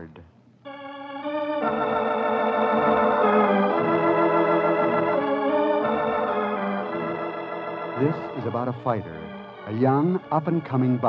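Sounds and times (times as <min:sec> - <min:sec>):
organ sustained chords: 0:00.0 - 0:11.0.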